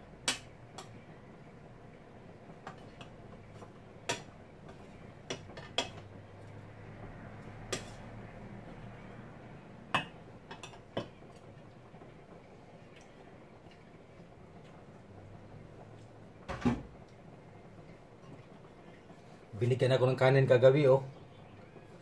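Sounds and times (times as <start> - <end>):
metal ladle clinking on pot: 5.3 - 6.1.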